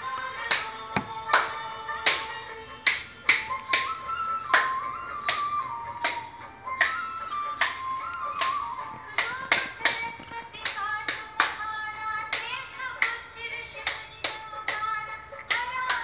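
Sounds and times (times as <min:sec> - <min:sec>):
devotional singing: 0:00.0 - 0:02.7
hands clapping in a beat: 0:00.1 - 0:16.0.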